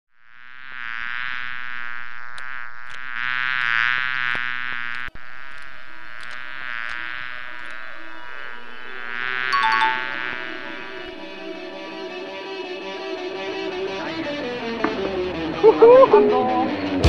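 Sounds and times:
cartoon bee buzzing: 0.2s - 13.8s
small clicks: 2.3s - 7.8s.

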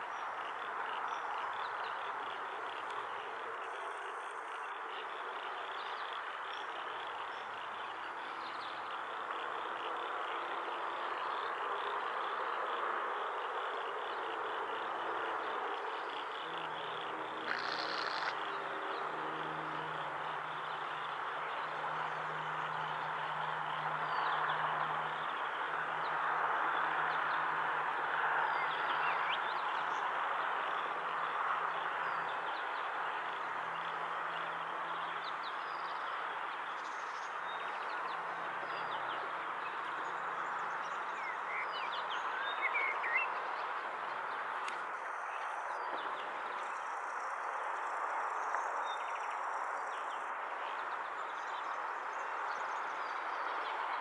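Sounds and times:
insects buzzing and chirping: 0.0s - 27.2s, 44.2s - 53.8s.

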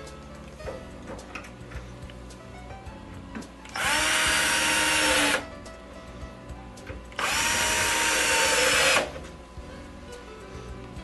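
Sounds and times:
power drill driving screws: 3.8s - 5.4s, 7.2s - 9.2s.

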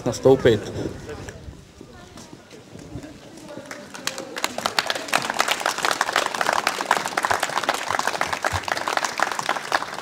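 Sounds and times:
crowd applauding: 3.6s - 10.0s.

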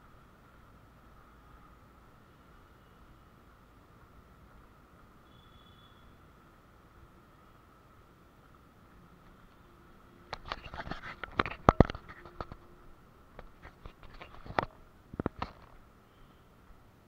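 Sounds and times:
faint high hum: 0.0s - 17.0s
sharp clicks and knocks: 10.3s - 12.7s, 13.3s - 15.8s.

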